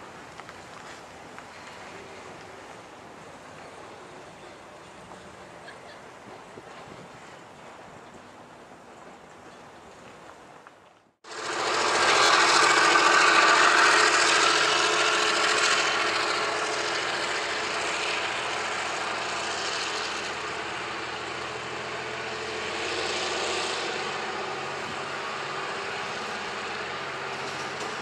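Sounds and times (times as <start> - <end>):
locomotive diesel engine running: 11.2 - 28.0.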